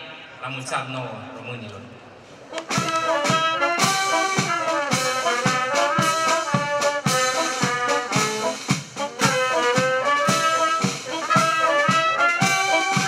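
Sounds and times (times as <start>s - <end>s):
trumpets and trombones: 2.5s - 13.0s
steady drum beat: 2.6s - 13.0s.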